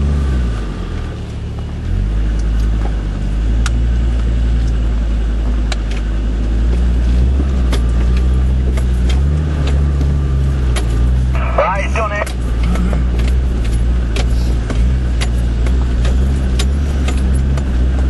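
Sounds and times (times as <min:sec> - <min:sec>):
engine pulling at low revs: 0:00.0 - 0:18.0
sharp clicks and knocks: 0:06.7 - 0:11.0, 0:12.2 - 0:18.0.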